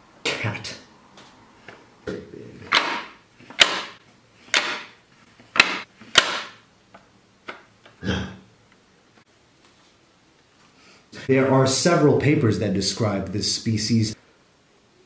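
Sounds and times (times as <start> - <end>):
sharp knocks: 2.7 - 6.6.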